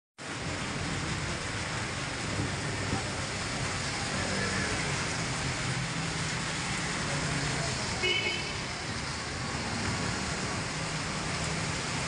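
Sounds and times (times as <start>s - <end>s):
motorcycle passing on wet road: 0.2s - 12.0s
steady rain on wet street: 0.2s - 12.0s.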